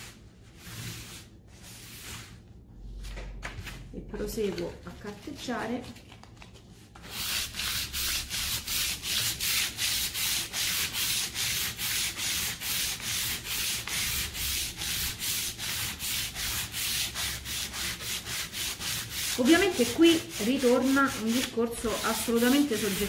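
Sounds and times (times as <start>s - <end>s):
sandpaper rubbing on wood: 7.1s - 23.0s.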